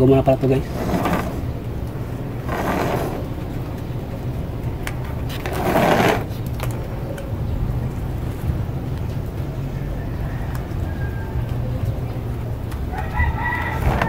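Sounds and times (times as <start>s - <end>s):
steady low hum: 0.0s - 9.7s.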